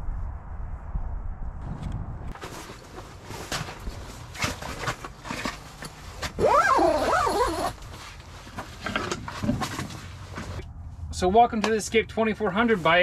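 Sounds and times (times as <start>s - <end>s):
gear rustling and clicking: 2.4s - 10.6s.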